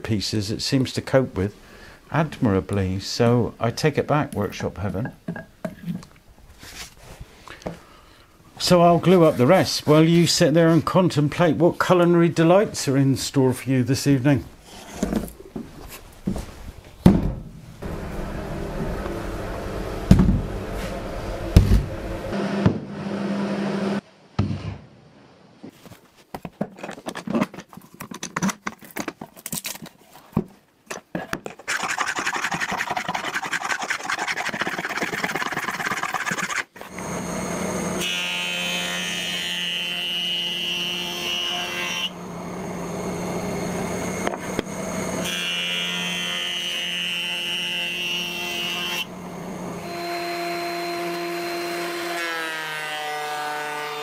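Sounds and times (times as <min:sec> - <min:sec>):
jointer humming: 0:17.8 - 0:24.0, 0:35.6 - 0:52.3
rasping rub over wood: 0:31.7 - 0:36.8.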